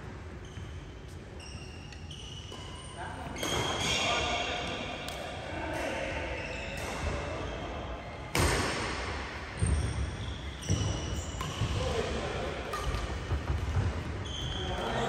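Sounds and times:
shoes squeaking on court: 0:00.0 - 0:05.2, 0:06.0 - 0:07.7, 0:09.6 - 0:15.0
rackets striking shuttlecock: 0:04.6 - 0:06.0, 0:10.7 - 0:14.0.

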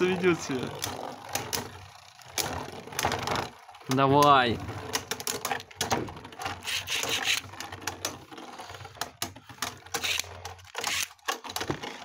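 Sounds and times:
spinning tops clicking and colliding: 0:00.0 - 0:08.3, 0:09.0 - 0:11.3
spinning tops whirring: 0:00.0 - 0:11.3.

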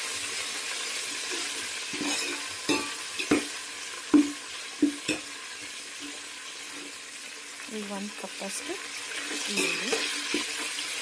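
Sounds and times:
spices sizzling in hot oil: 0:00.0 - 0:11.0
metal spoon scraping a pot: 0:01.4 - 0:03.4.

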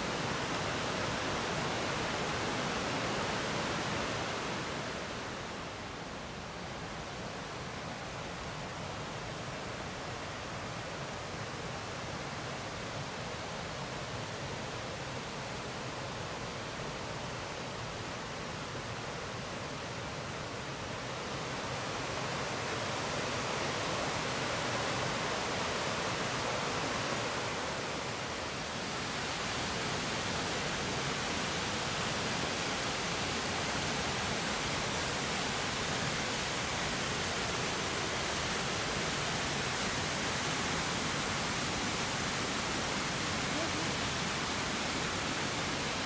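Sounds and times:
waterfall rushing: 0:09.6 - 0:46.0.

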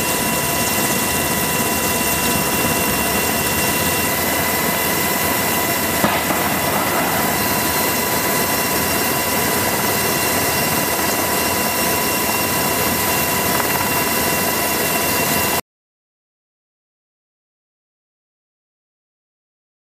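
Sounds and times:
helicopter rotor noise: 0:00.0 - 0:15.6
high turbine whine: 0:00.0 - 0:15.6
missile launch crack: 0:06.0 - 0:08.9.

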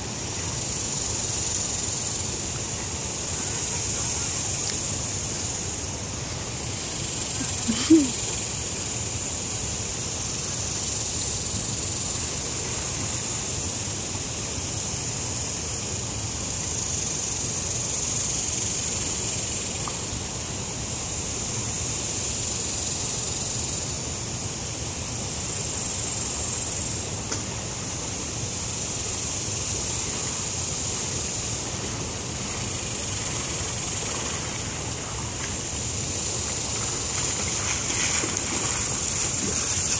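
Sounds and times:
cicadas droning: 0:00.0 - 0:39.9
shallow river rushing: 0:30.0 - 0:39.9.

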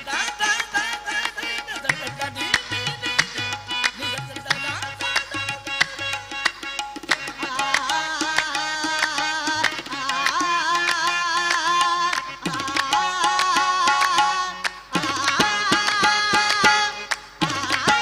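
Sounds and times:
man singing: 0:00.0 - 0:06.4
harmonium: 0:00.0 - 0:18.0
tabla strokes: 0:00.0 - 0:18.0.

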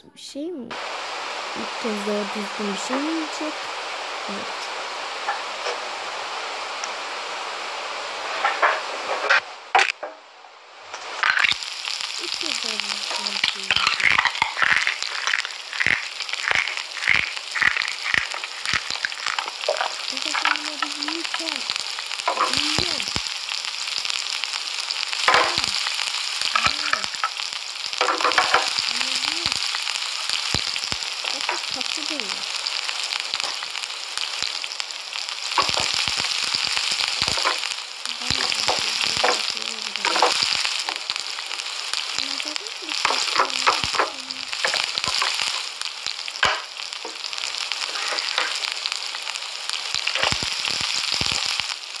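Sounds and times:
food sizzling on a griddle: 0:00.7 - 0:52.0
wet squelches: 0:12.3 - 0:23.7.

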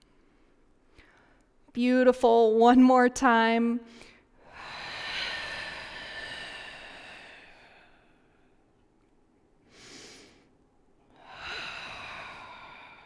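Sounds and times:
woman breathing hard: 0:03.9 - 0:08.7, 0:09.6 - 0:13.0.

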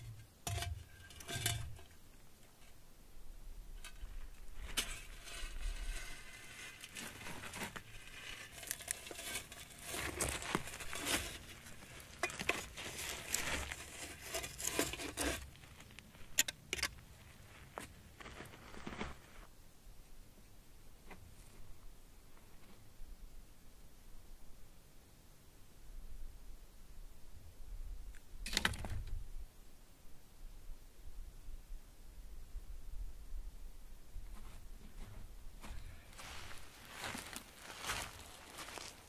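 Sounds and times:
clay pot scraping over coals: 0:00.0 - 0:02.0, 0:03.8 - 0:17.0.

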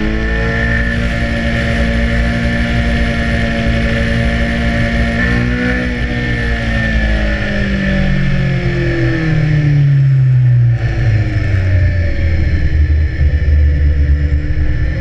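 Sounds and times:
motorcycle engine revs falling: 0:00.0 - 0:09.5.

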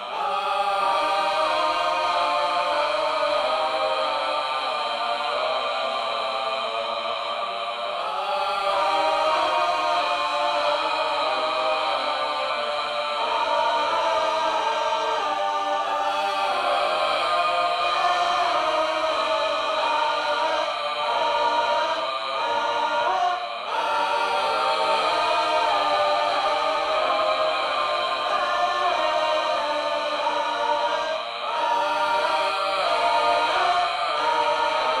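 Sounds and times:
choir chanting and singing: 0:00.0 - 0:35.0.

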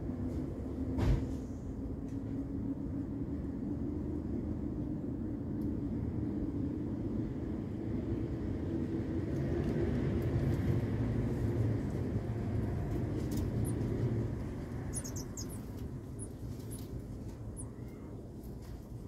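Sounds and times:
low engine rumble: 0:00.0 - 0:19.0
small bird chirping: 0:13.3 - 0:18.1.

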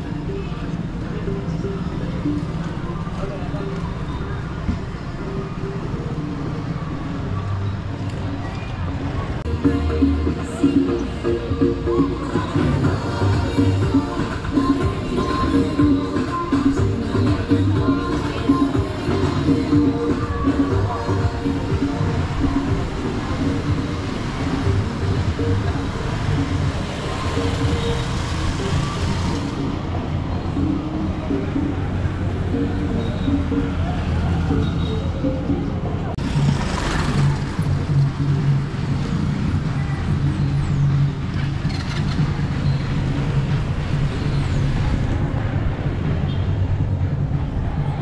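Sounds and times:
street noise: 0:00.0 - 0:48.0
motorcycle engines passing: 0:16.0 - 0:48.0.

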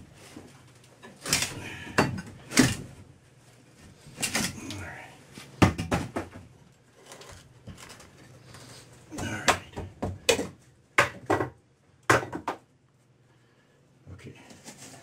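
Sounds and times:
wooden boards knocking and clattering: 0:05.6 - 0:06.6, 0:09.2 - 0:12.7.

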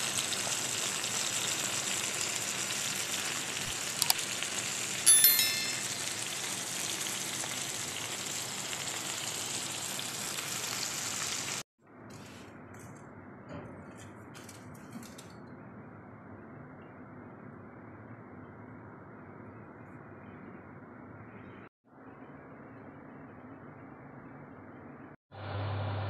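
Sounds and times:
meat sizzling in a frying pan: 0:00.0 - 0:05.0, 0:05.8 - 0:11.6
ringing notification chime: 0:05.1 - 0:06.5.

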